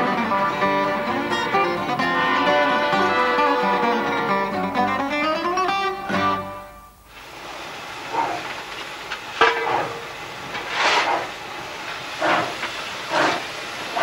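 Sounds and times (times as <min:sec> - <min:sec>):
steam locomotive hissing: 0:00.0 - 0:14.0
metallic clank: 0:09.4 - 0:11.3.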